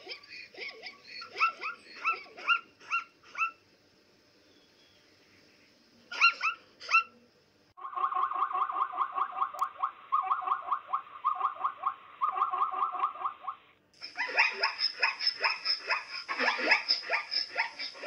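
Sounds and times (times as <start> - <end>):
zebras barking calls: 7.8 - 18.0.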